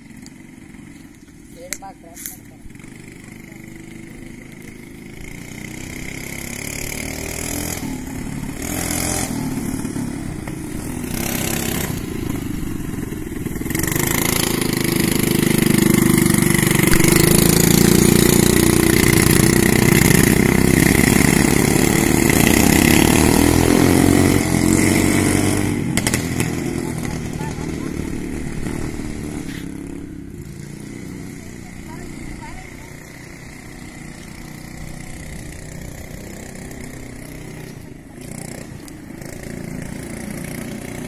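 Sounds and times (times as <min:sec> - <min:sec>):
quad-bike engine passing: 0:00.0 - 0:41.0.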